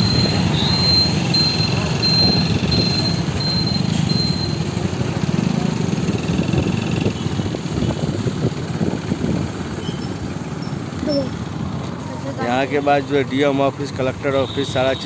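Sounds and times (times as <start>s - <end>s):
high electronic beeps: 0.0s - 4.7s
truck engine passing: 0.0s - 14.3s
road traffic: 0.0s - 15.0s.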